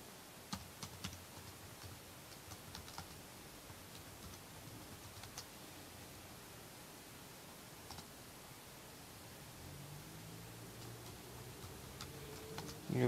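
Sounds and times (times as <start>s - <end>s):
steady low hiss: 0.0s - 13.0s
keyboard typing: 0.5s - 5.5s, 7.9s - 8.1s, 10.8s - 13.0s.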